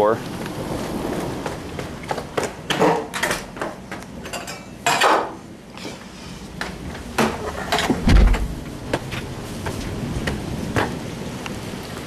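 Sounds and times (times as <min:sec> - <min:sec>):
door rushing scrape: 0:07.4 - 0:10.0
door knocks and latch clicks: 0:07.8 - 0:08.5.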